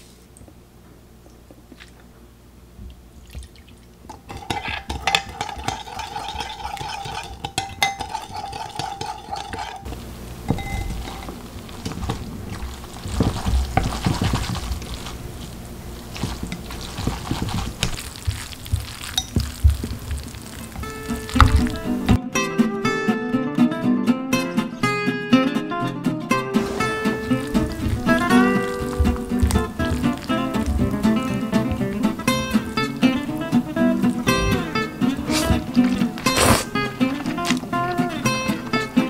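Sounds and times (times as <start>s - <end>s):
spoon scraping a glass bowl: 4.3s - 9.9s
noodles squishing in sauce: 10.9s - 22.2s, 26.6s - 39.0s.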